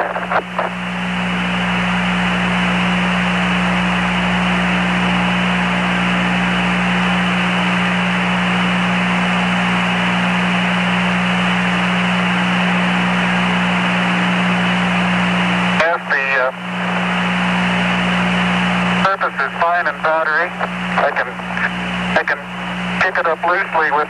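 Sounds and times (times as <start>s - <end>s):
low hum: 0.0s - 24.0s
radio static hiss: 0.0s - 24.0s.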